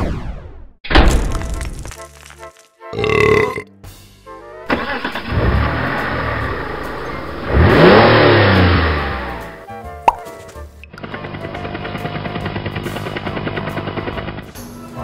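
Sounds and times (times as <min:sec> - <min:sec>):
comic burp sound effect: 0:03.0 - 0:03.7.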